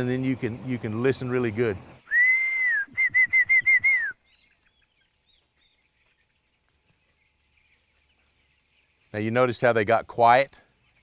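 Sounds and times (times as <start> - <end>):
faint peeping of chickens: 0.0 - 2.1, 3.7 - 11.0
person whistling: 2.1 - 4.2.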